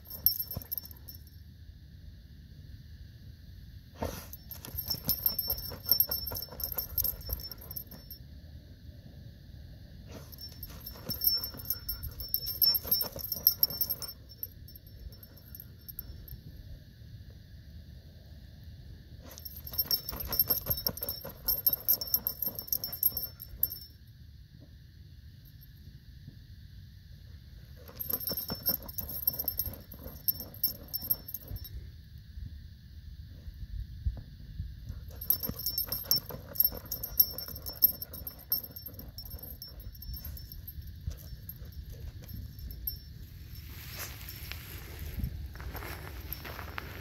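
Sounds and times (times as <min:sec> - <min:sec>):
metal harness jingling: 0:00.0 - 0:01.1, 0:04.3 - 0:08.2, 0:10.2 - 0:16.2, 0:19.3 - 0:23.8, 0:27.8 - 0:31.7, 0:35.0 - 0:43.1
dog digging in gravelly sand: 0:04.0 - 0:08.0, 0:10.1 - 0:14.5, 0:19.3 - 0:23.6, 0:35.2 - 0:47.0.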